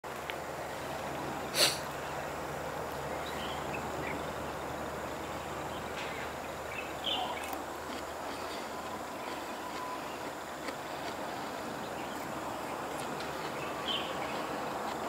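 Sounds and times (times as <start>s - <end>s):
outdoor background noise: 0.0s - 15.0s
faint high chirps: 8.5s - 10.3s.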